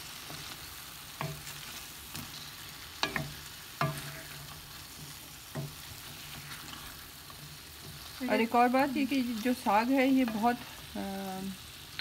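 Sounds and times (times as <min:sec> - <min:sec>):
food sizzling in pan: 0:00.0 - 0:12.0
wooden spoon knocking pan: 0:01.2 - 0:01.5, 0:03.0 - 0:04.2.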